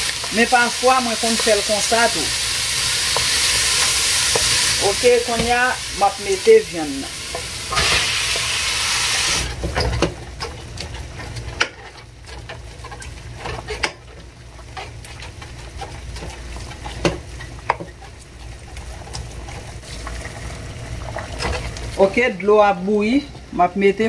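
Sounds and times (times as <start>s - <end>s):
meat sizzling in a pan: 0.0s - 10.0s.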